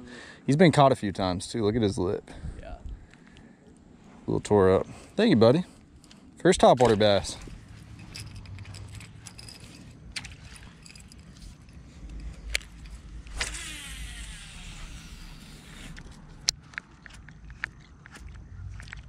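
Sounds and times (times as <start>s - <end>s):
reel spool whirring: 7.7s - 16.5s
fishing reel click: 12.1s - 16.1s.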